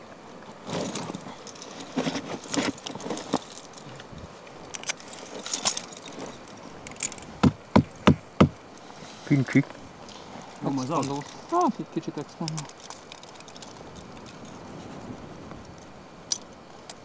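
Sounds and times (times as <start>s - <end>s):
metal climbing gear clinking: 0.7s - 7.4s, 10.0s - 14.9s.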